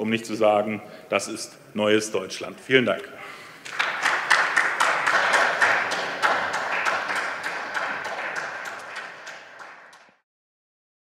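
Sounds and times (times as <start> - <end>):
applause with hand claps: 3.6 - 10.2.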